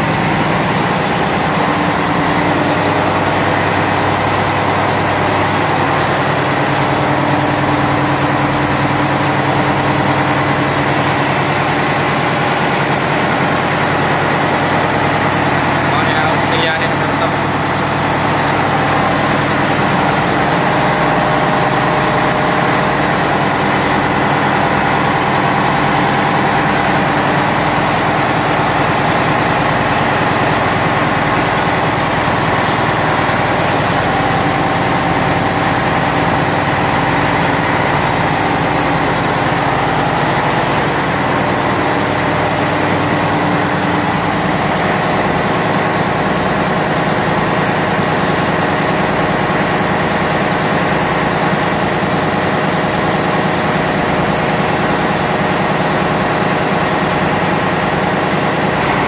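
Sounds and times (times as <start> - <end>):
ship engine room machinery: 0.0 - 59.0.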